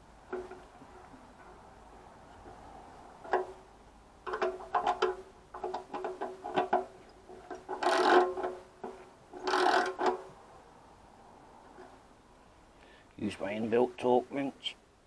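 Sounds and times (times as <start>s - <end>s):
ratchet spanner clicking: 7.5s - 8.6s, 9.4s - 10.2s.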